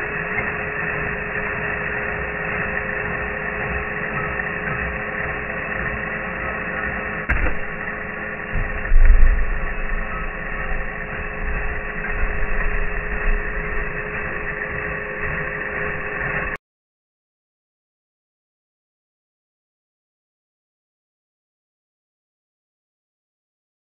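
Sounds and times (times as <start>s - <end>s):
power drill boring into wood: 0.0s - 16.6s.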